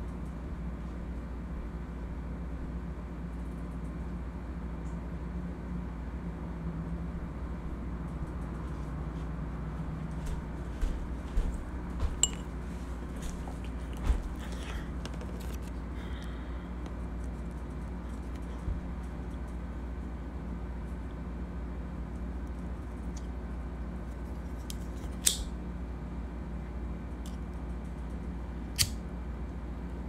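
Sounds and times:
low room hum: 0:00.0 - 0:30.0
light ringing clink: 0:12.2 - 0:12.5.

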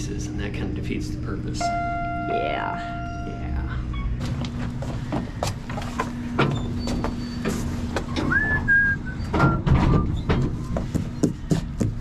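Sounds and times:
freight elevator hum and rumble: 0:00.0 - 0:12.0
short rising whistle: 0:08.2 - 0:10.1
cart knocks and rattles: 0:09.3 - 0:12.0.

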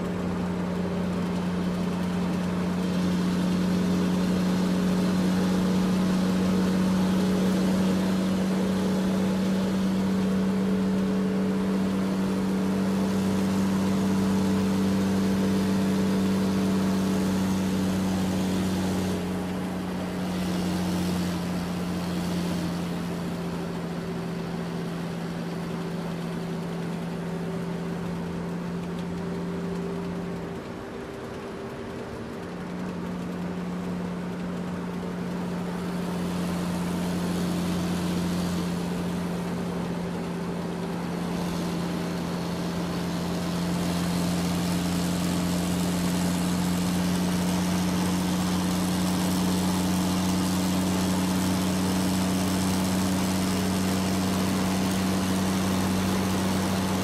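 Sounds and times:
rc excavator motor hum: 0:35.2 - 0:57.0.

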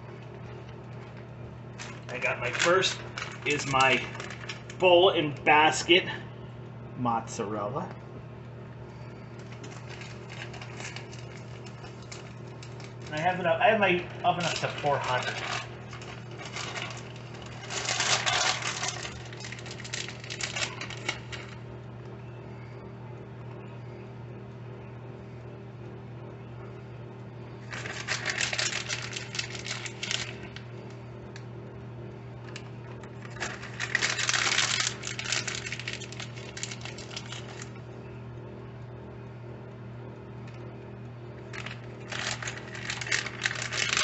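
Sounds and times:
steady low hum: 0:00.0 - 0:44.0
plastic bag crinkling and rustling: 0:01.8 - 0:05.2, 0:09.4 - 0:21.6, 0:27.6 - 0:30.6, 0:32.5 - 0:37.8, 0:41.5 - 0:44.0.

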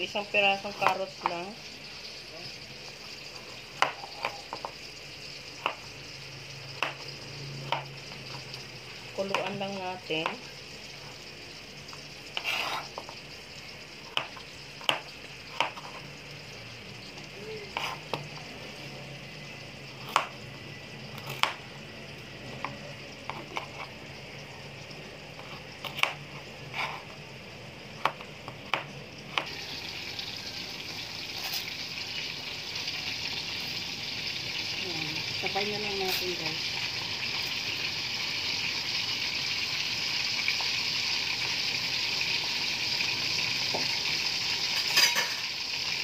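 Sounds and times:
water boiling in pot: 0:00.0 - 0:46.0
knife chopping on cutting board: 0:21.2 - 0:21.6, 0:25.8 - 0:26.2.

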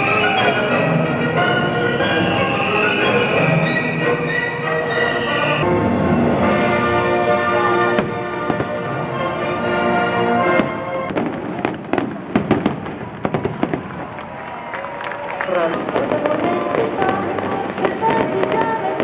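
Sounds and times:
orchestral music: 0:00.0 - 0:12.8, 0:15.5 - 0:19.0
firework shells bursting with cracks: 0:10.6 - 0:14.3.

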